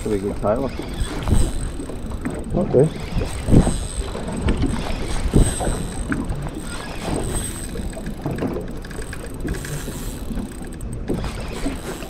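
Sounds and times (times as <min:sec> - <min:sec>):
wind on microphone: 0:00.0 - 0:08.8
water against boat hull: 0:00.0 - 0:12.0.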